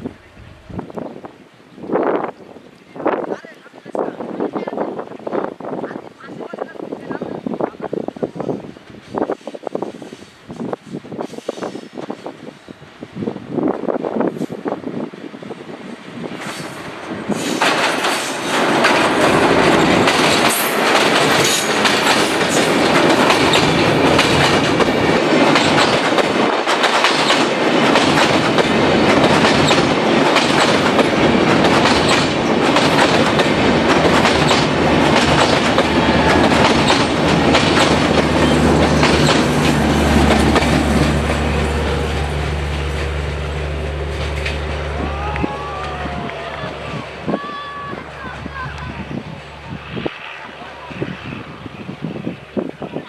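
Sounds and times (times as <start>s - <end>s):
train wheels clickety-clack: 16.3s - 43.2s, 44.1s - 44.8s.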